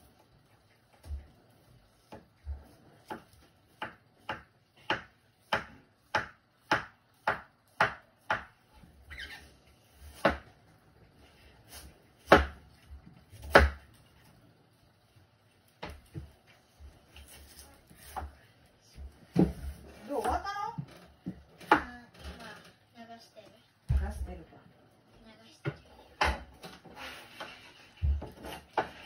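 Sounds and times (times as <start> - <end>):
knife chopping on cutting board: 3.0 - 8.6, 10.0 - 10.5, 11.7 - 12.6, 13.4 - 13.9.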